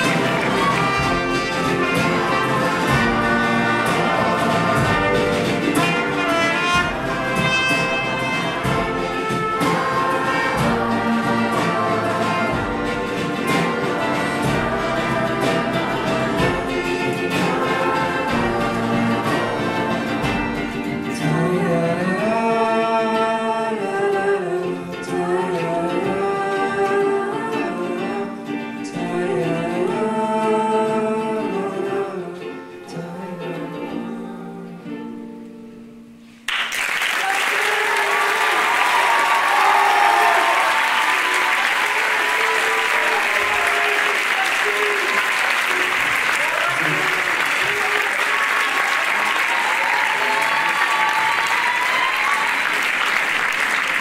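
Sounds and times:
drums keeping a beat: 0.0 - 21.4
singing and choir: 0.0 - 35.0, 37.5 - 52.8
ukulele and strings: 0.0 - 36.6, 38.4 - 54.0.

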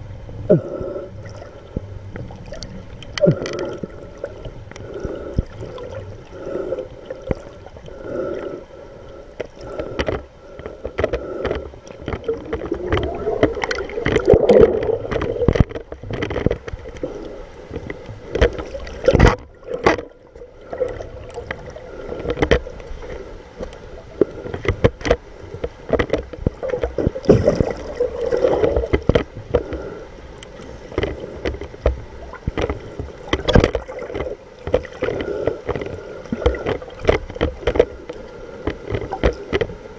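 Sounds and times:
muffled underwater rushing: 0.0 - 39.9.

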